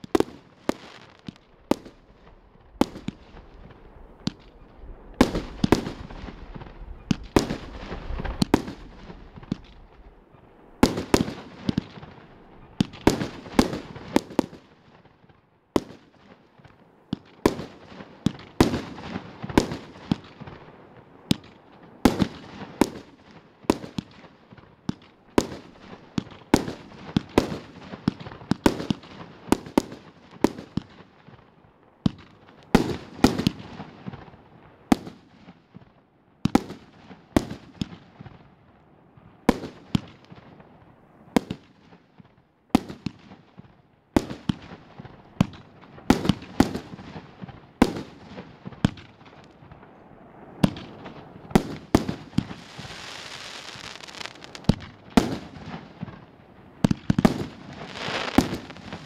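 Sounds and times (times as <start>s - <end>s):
firework bangs and bursts: 0.0s - 4.6s, 5.2s - 10.0s, 10.8s - 38.5s, 39.4s - 59.0s
firework hiss: 52.0s - 55.6s, 57.3s - 59.0s.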